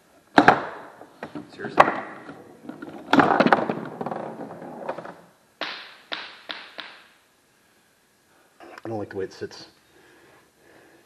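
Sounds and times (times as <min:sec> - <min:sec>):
foosball rattling: 0:00.3 - 0:05.3.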